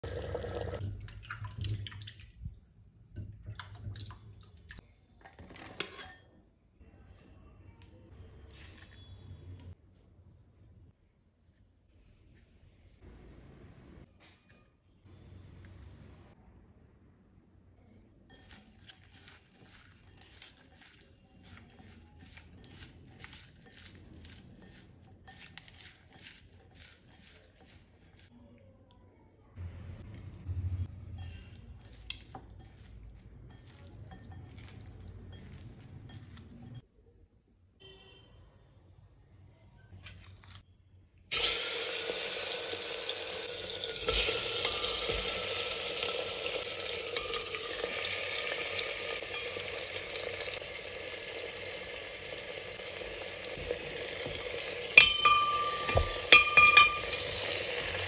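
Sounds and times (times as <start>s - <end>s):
water splashing and dripping: 0.7s - 4.8s.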